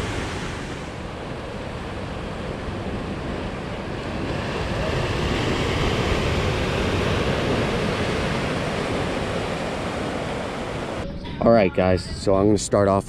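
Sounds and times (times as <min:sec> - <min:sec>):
ocean waves breaking: 0:00.0 - 0:11.0.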